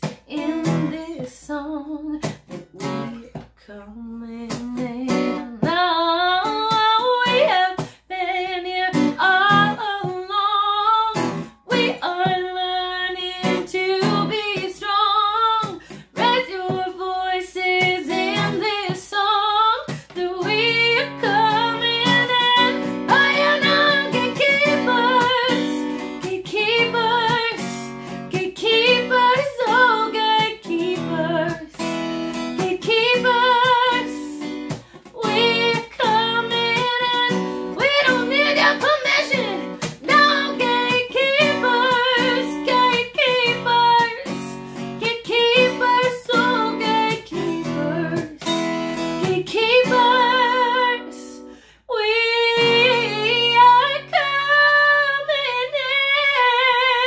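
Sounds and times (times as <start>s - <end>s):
strummed acoustic guitar: 0.0s - 1.4s, 2.2s - 3.6s, 4.4s - 51.6s, 52.4s - 55.1s
woman singing: 0.0s - 57.0s.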